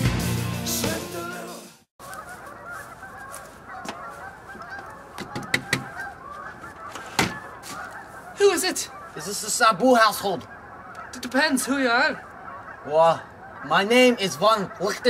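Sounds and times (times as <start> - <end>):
chorus of honking animal calls: 2.0 - 15.0
sharp knocks: 5.2 - 5.9.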